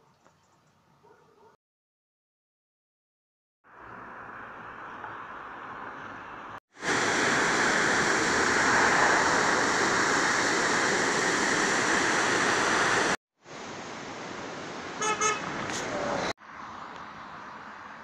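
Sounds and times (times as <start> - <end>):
water rushing over rocks: 6.8 - 14.6.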